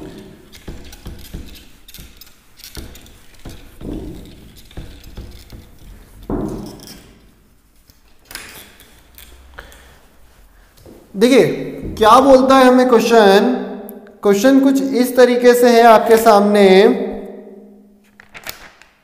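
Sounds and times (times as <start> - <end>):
duster wiping whiteboard: 0.0 - 13.2.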